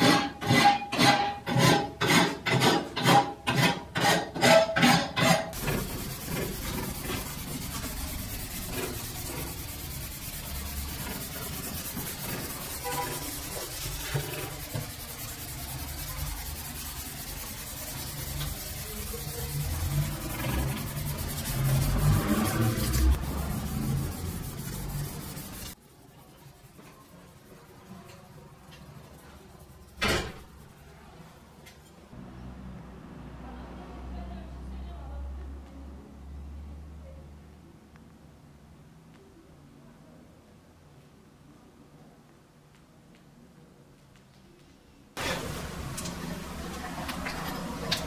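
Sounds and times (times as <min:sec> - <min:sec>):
file rasping on steel blade: 0:00.0 - 0:25.8
sandpaper scratching on steel: 0:00.0 - 0:27.9.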